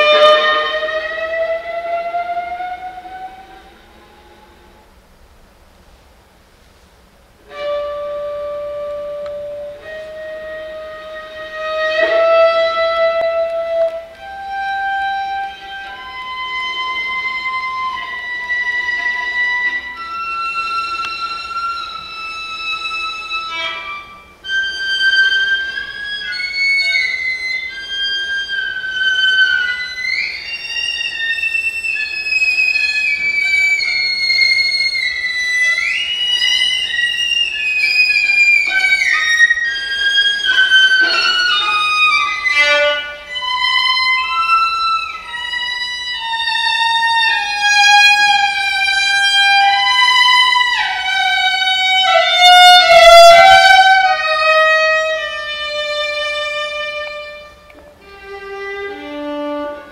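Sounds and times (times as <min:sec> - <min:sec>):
solo viola melody: 0:00.0 - 0:05.0, 0:07.4 - 0:59.9.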